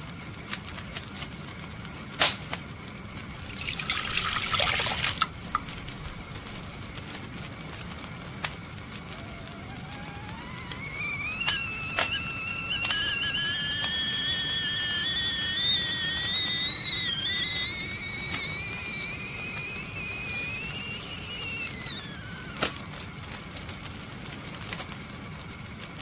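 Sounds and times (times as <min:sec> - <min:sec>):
fire crackling and popping: 0:00.0 - 0:26.0
tea kettle whistling: 0:03.1 - 0:23.4.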